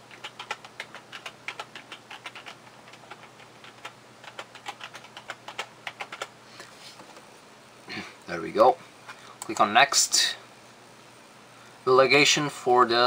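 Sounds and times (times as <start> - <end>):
computer keyboard typing: 0.0 - 6.4.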